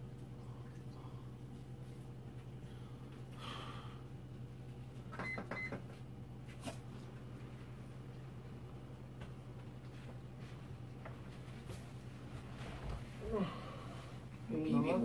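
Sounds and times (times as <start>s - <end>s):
faint low hum: 0.0s - 15.0s.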